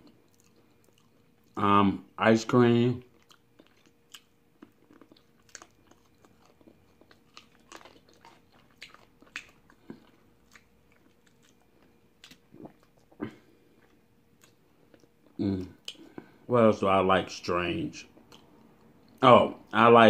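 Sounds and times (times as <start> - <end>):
chewing and biting chicken: 0.0 - 1.6, 3.1 - 16.3.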